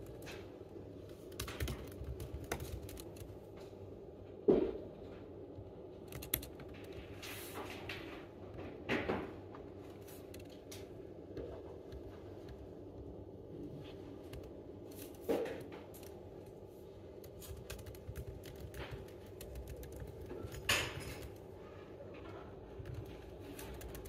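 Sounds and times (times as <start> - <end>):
faint steady hum: 0.0 - 24.0
laptop keyboard typing: 1.0 - 3.6, 6.0 - 7.2, 16.0 - 21.5, 22.6 - 24.0.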